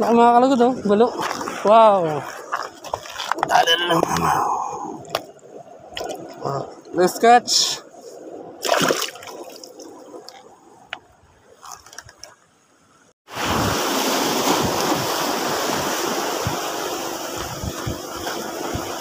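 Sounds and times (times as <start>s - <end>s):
small water splashes: 1.2s - 4.1s, 5.1s - 6.5s, 8.6s - 12.4s, 13.3s - 19.0s
surf washing over rocks: 13.3s - 19.0s
wind buffeting microphone: 13.4s - 19.0s.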